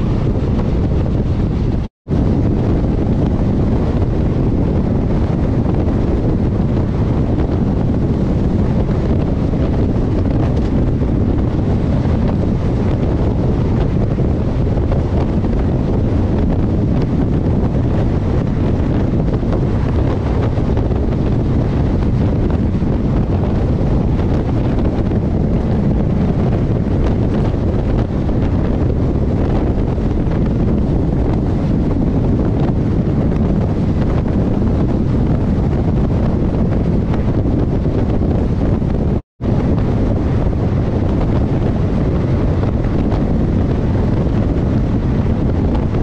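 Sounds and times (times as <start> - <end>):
moving train rumble: 0.0 - 46.0
wind buffeting microphone: 0.0 - 46.0.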